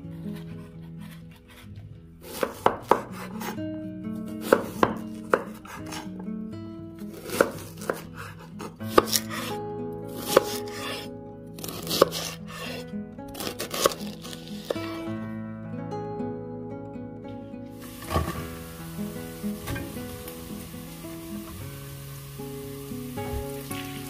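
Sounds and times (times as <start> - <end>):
music: 0.0 - 24.0
knife chopping cabbage on wood: 2.2 - 3.6, 4.4 - 6.0, 7.1 - 9.5, 10.1 - 11.0, 11.6 - 12.8, 13.4 - 15.0.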